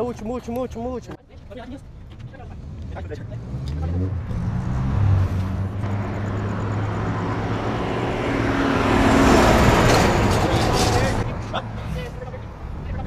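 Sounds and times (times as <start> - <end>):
low traffic rumble: 0.0 - 13.0
vehicle passing close: 2.4 - 13.0.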